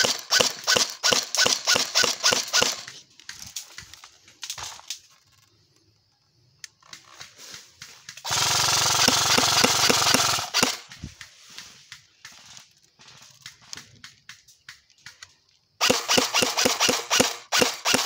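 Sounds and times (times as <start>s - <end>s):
airsoft rifle full-auto burst: 0.0s - 2.9s, 8.2s - 10.9s, 15.8s - 18.0s.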